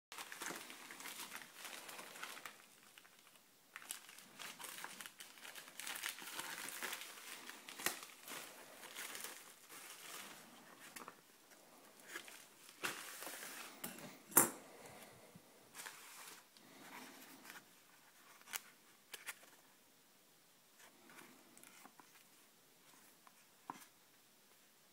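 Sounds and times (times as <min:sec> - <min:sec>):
envelope crinkling and rustling: 0:00.1 - 0:13.8, 0:15.7 - 0:19.6.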